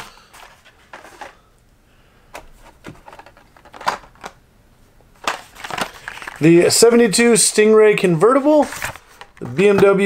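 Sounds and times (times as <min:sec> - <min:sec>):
plastic blister packages clicking: 0:02.4 - 0:04.4, 0:05.2 - 0:06.5.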